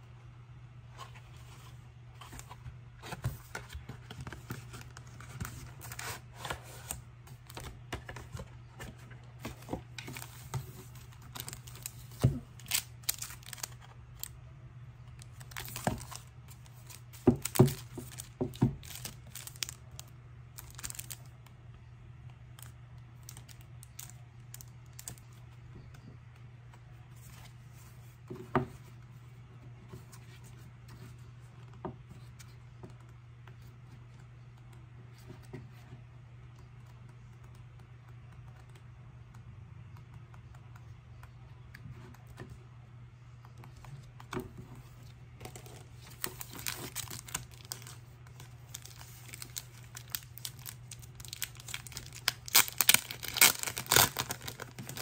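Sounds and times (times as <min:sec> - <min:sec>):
packaging rustling and crinkling: 0:01.0 - 0:14.3, 0:15.2 - 0:21.3, 0:45.0 - 0:55.0.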